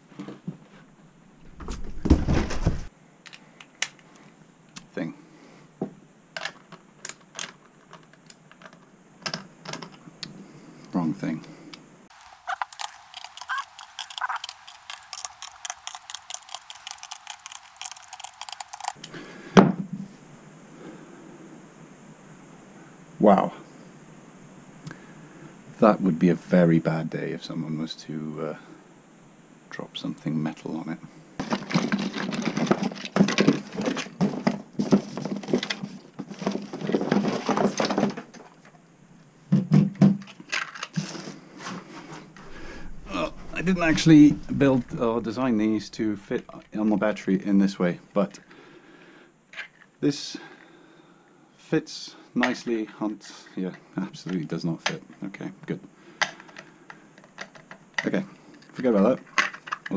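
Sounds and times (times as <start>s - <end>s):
packaging rustling and crackling: 12.1s - 19.0s.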